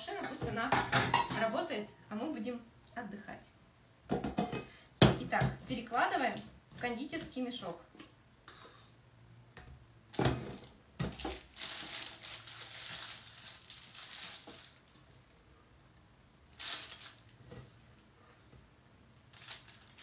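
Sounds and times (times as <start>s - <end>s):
plastic piping bag crinkling: 11.0s - 15.3s, 16.5s - 17.4s, 19.3s - 20.0s.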